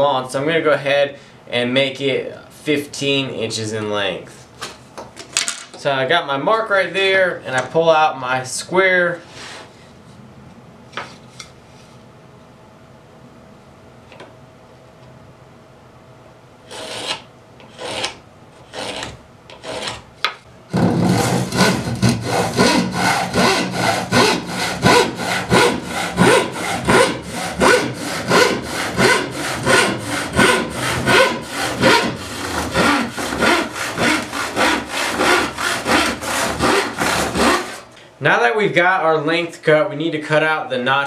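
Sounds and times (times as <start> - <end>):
handsaw cutting wood: 16.7 - 20.0, 20.7 - 37.9.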